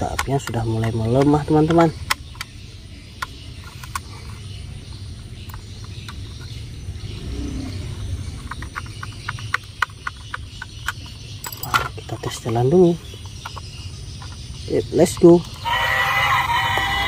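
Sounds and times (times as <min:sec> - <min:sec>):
steady low rumble: 0:01.9 - 0:12.1.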